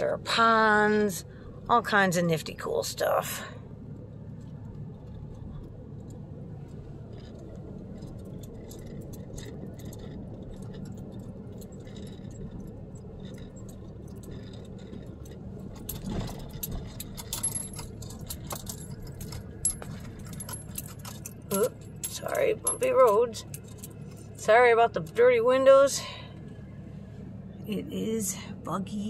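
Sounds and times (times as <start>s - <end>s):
vehicle cabin hum: 0.0s - 29.0s
small rattles of loose things: 4.0s - 25.3s
vehicle bump: 4.3s - 25.3s
light metallic jingling: 7.1s - 25.3s.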